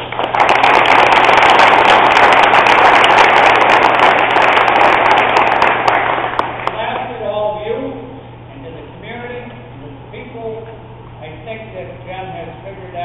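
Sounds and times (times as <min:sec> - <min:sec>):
crowd applauding: 0:00.0 - 0:06.8.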